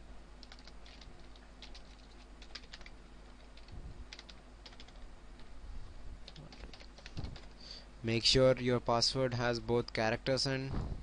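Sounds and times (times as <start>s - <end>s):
typing on a keyboard: 0.4s - 5.0s, 6.3s - 7.5s.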